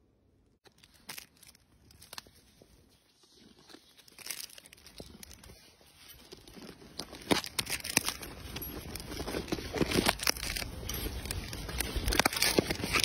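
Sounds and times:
plastic packaging crinkling and tearing: 0.6s - 13.0s.

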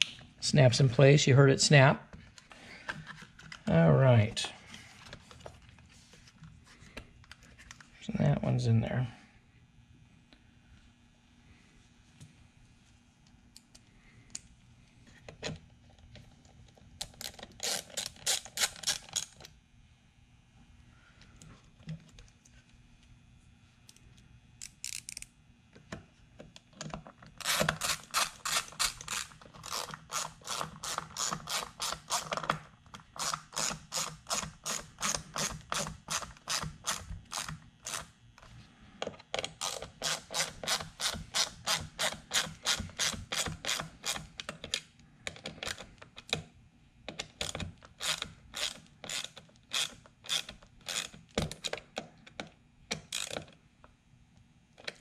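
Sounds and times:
ratchet clicking: 24.6s - 25.3s, 48.0s - 51.1s.

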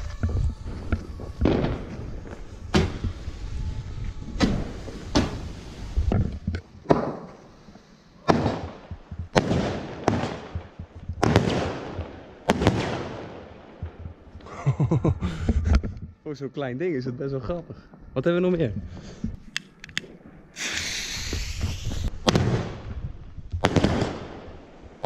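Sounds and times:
firework bangs echoing: 0.2s - 3.4s, 8.2s - 14.0s, 23.6s - 24.6s.

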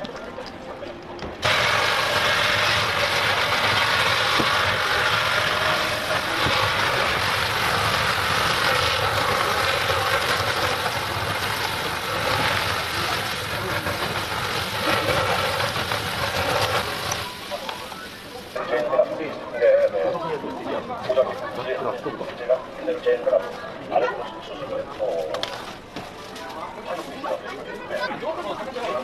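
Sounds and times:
air rushing into fire: 1.4s - 18.6s.

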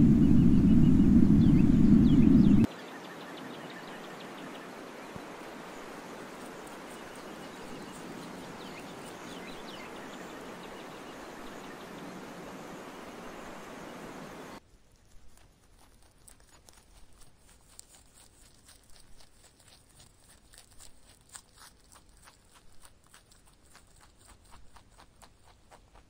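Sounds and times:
faint bird chirps: 0.0s - 14.6s
steady woodland hiss: 2.6s - 14.6s.

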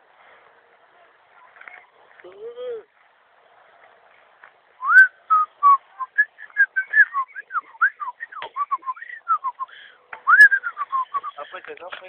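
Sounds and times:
person whistling a tune: 4.8s - 9.7s, 10.3s - 11.4s.

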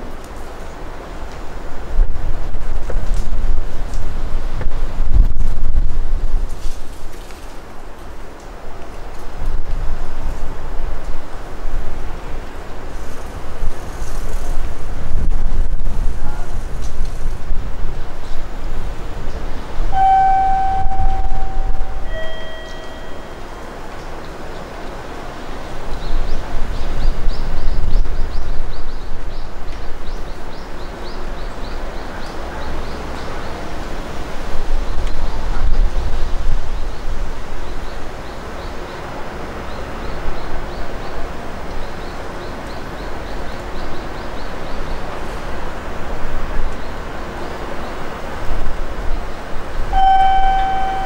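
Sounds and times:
wind on microphone: 1.6s - 7.4s, 9.0s - 23.5s, 25.8s - 30.6s, 33.9s - 38.2s
steady low rumble: 9.4s - 23.8s
two-note descending chime: 20.0s - 23.6s, 50.0s - 51.0s.

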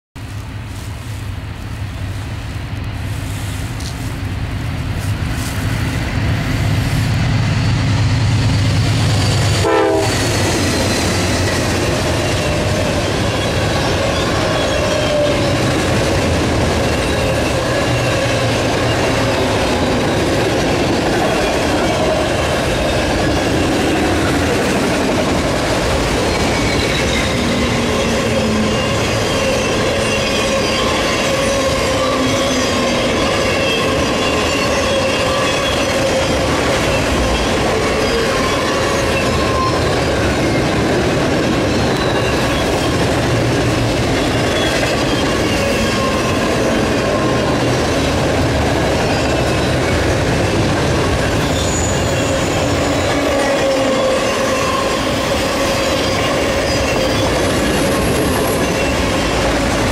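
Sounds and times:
clicking train wheels: 0.2s - 59.9s
diesel locomotive engine drone: 0.2s - 59.9s
train cars rumbling: 0.2s - 59.9s
high-pitched wheel squeals: 7.1s - 15.8s, 26.1s - 40.7s, 41.6s - 43.0s, 51.2s - 59.8s.

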